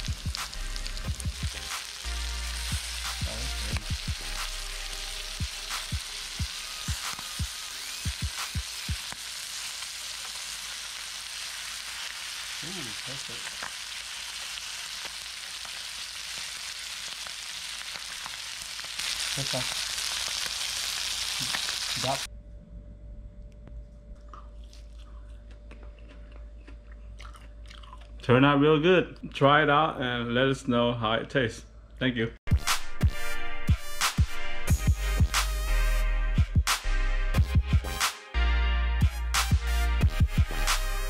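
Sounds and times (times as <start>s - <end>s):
fish sizzling in hot oil: 0.0s - 22.3s.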